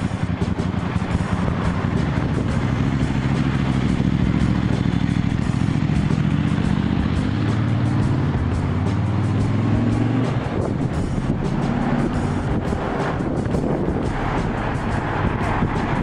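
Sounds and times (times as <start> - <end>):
road traffic: 0.0 - 16.0
vehicle engine droning: 0.0 - 16.0.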